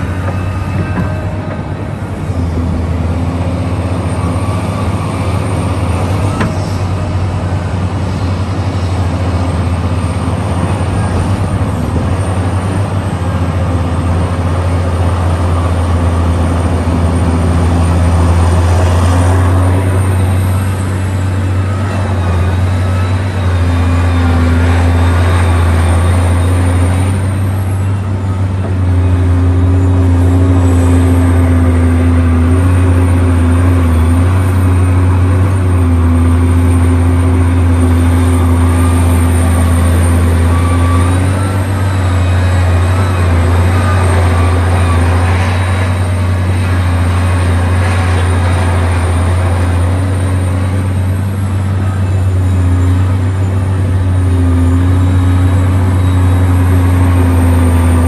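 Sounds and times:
excavator diesel engine under load: 0.0s - 58.0s.

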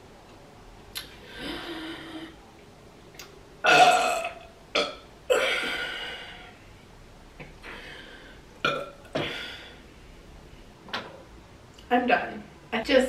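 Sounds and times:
woman burping: 3.6s - 6.4s, 8.6s - 9.5s.

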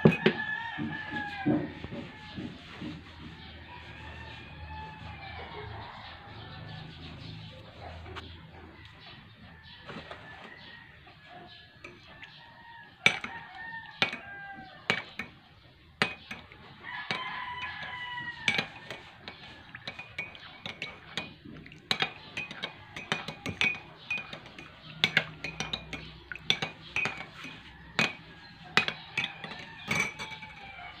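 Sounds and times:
rooster crowing: 0.0s - 7.1s, 12.2s - 14.9s, 16.8s - 19.7s, 27.4s - 31.0s
spoon clinking on ceramic: 11.8s - 12.3s, 13.0s - 15.4s, 16.0s - 30.9s.

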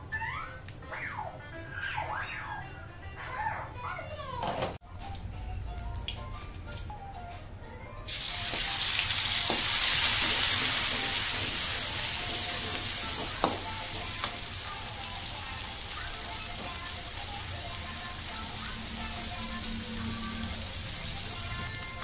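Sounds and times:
paste sizzling in hot oil: 8.1s - 19.2s.

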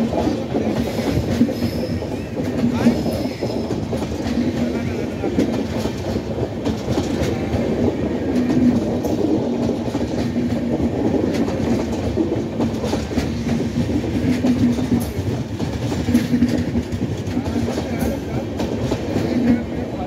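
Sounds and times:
steel wheels rumbling on rails: 0.0s - 20.0s
wheels clacking over rail joints: 0.0s - 20.0s.

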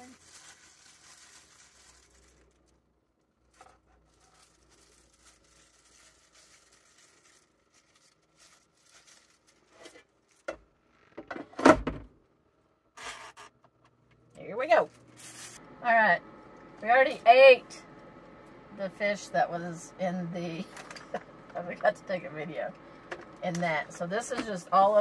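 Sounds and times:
gloved hands rustling food: 0.0s - 10.5s.

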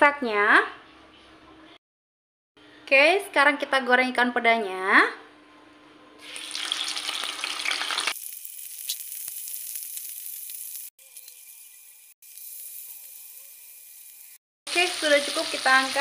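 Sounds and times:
fish sizzling in hot oil: 6.2s - 16.0s.

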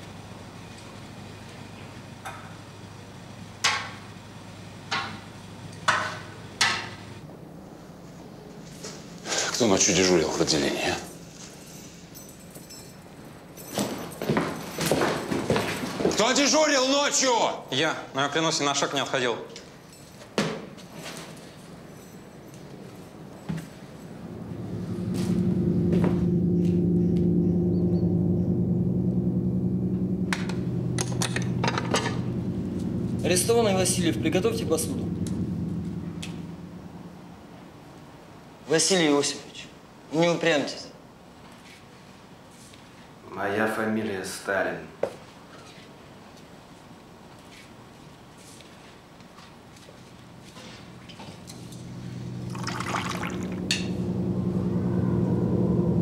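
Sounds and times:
low droning chord: 24.0s - 37.9s, 50.2s - 56.0s.

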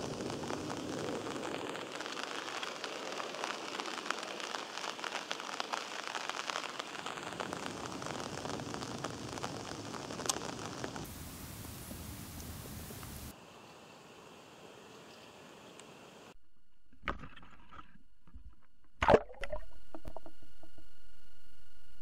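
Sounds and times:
rain falling on leaves and water: 0.0s - 13.4s.

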